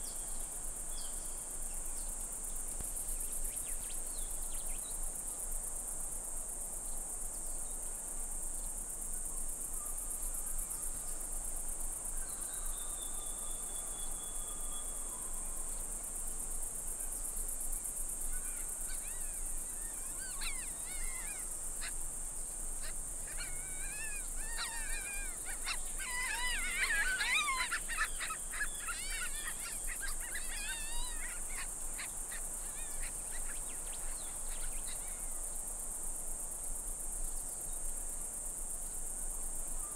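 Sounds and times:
high-pitched insect chorus: 0.0 - 39.9
birds chirping and singing: 19.0 - 21.4, 23.3 - 34.9.

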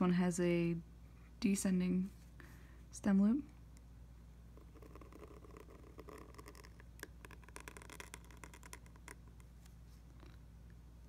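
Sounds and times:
low steady hum: 0.0 - 11.0
pen nib scratching paper: 4.6 - 9.4.

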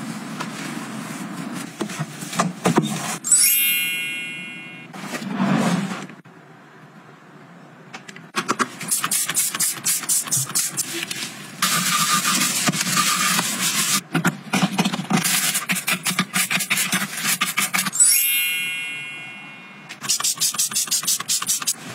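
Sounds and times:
sponge rubbing sink: 8.9 - 14.0
brush scrubbing ceramic basin: 11.6 - 14.0.

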